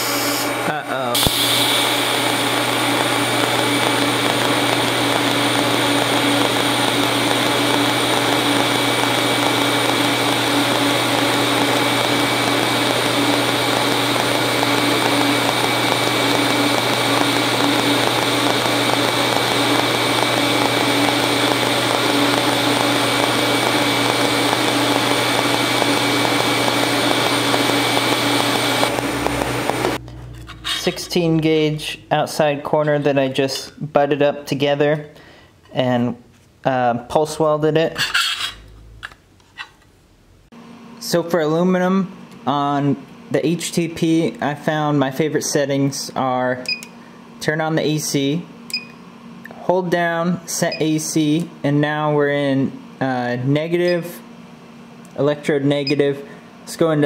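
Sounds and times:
welding arc hissing: 0.0s - 30.0s.

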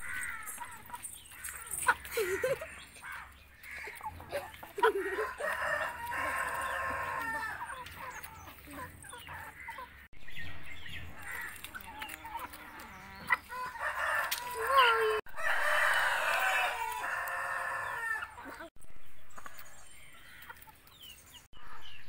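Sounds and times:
chickens clucking: 0.0s - 21.4s
rooster crowing: 5.1s - 7.7s, 13.6s - 18.4s.

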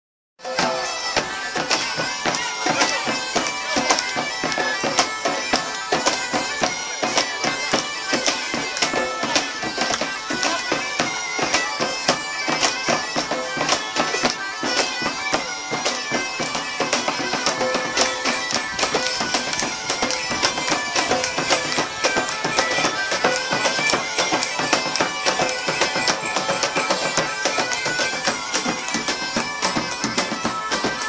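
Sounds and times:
bagpipes playing: 0.4s - 31.0s
drums beating: 0.4s - 31.0s.

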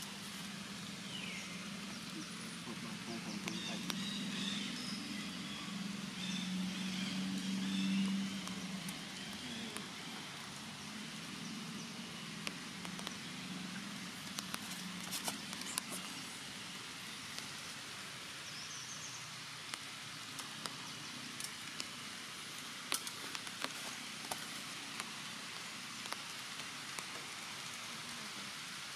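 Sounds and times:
steady hiss: 0.0s - 28.9s
light ticks: 12.4s - 16.2s, 19.6s - 22.0s, 22.8s - 27.8s.

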